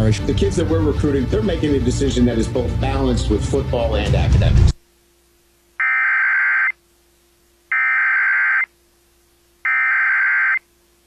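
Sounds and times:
warbling digital data tones: 5.8s - 6.8s, 7.7s - 8.7s, 9.7s - 10.6s.

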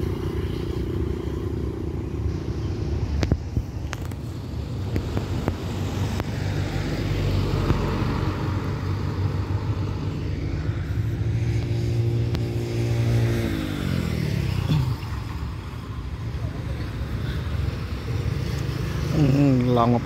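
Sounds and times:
road traffic passing: 0.0s - 20.0s
vehicle engine passing by: 5.3s - 20.0s.

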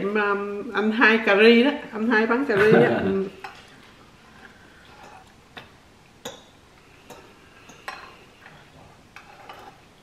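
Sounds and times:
cutlery clinking against bowls: 3.4s - 3.8s, 4.8s - 9.8s.

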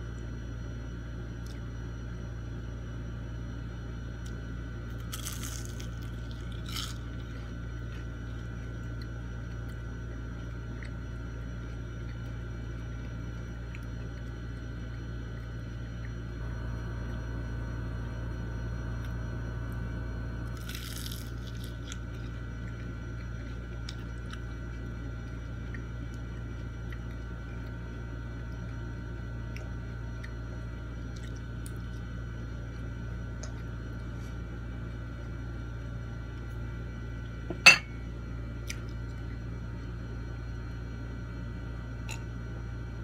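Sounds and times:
steady background hum: 0.0s - 43.0s
quiet eating: 5.0s - 16.3s
drinking glass clink: 37.5s - 37.9s.

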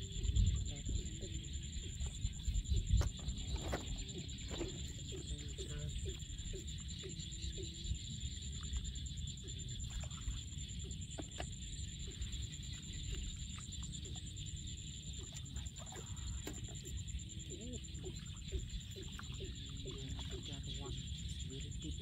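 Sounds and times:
low wind rumble: 0.0s - 6.7s
distant bird calls: 0.0s - 22.0s.

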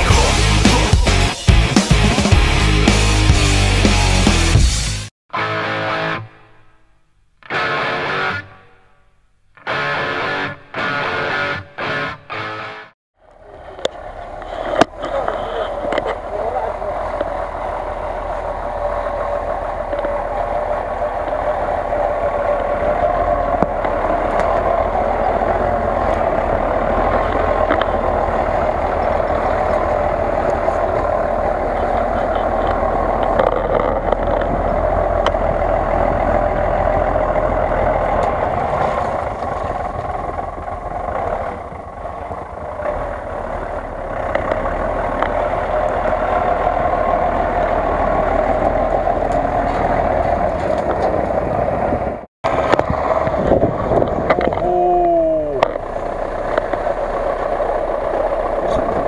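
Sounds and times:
off-road vehicle engine under load: 0.0s - 5.1s, 9.6s - 59.0s
steady whine: 5.4s - 49.8s.

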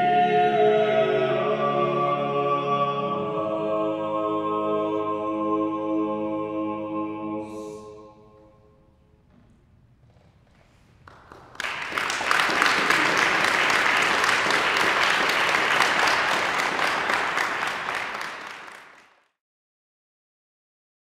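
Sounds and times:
audience applauding: 10.6s - 19.3s.

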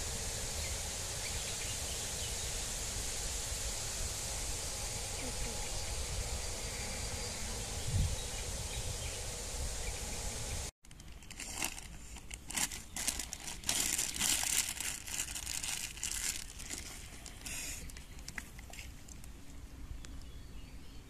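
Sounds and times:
steady outdoor hiss: 0.0s - 21.0s
crinkling rustles: 10.8s - 19.6s.

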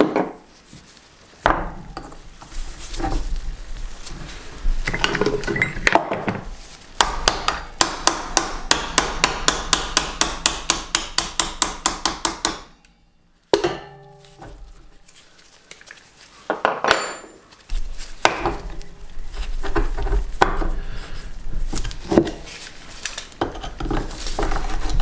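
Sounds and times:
hammer tapping metal punch: 7.0s - 12.8s.

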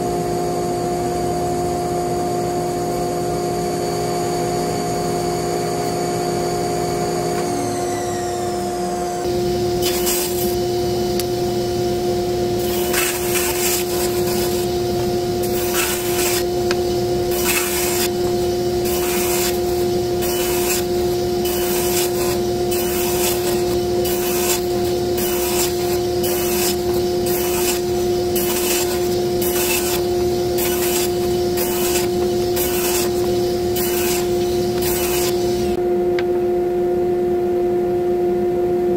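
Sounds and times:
table saw humming: 0.0s - 35.8s
saw cutting wood: 7.1s - 35.8s
machine winding down: 7.4s - 35.8s.

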